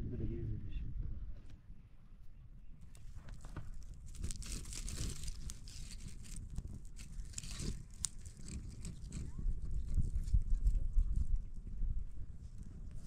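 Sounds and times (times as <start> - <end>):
rustling and crinkling: 2.8 - 11.7
sharp clicks and cracks: 2.9 - 9.3.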